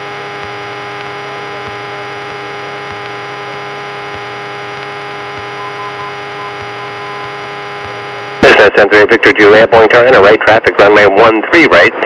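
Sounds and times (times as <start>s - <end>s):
aircraft engine drone: 0.0s - 9.0s
intercom hum and hiss: 0.0s - 12.0s.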